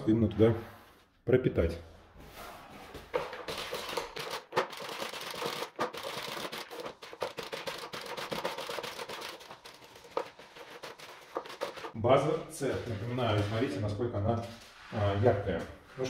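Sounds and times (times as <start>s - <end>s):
paint roller crackling in tray: 3.2s - 12.0s.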